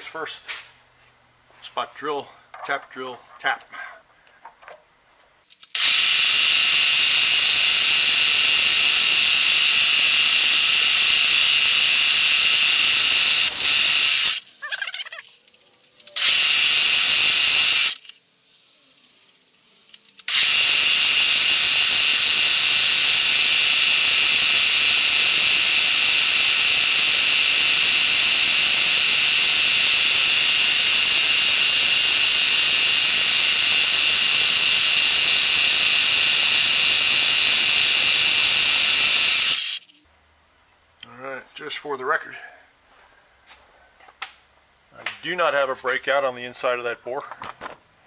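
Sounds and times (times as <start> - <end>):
drill spindle high whine: 5.8 - 14.4, 16.2 - 18.0, 20.3 - 39.9.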